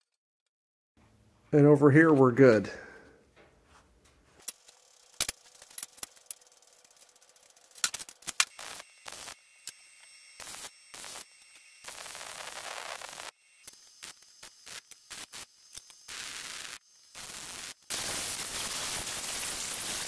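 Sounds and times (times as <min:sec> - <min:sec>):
welder arc crackling: 0:04.4 - 0:20.0.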